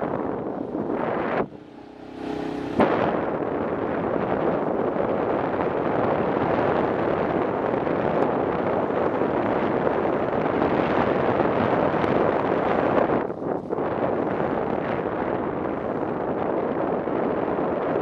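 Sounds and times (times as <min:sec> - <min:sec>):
road noise on wet surface: 0:00.0 - 0:10.7
wind rush on microphone: 0:00.0 - 0:18.0.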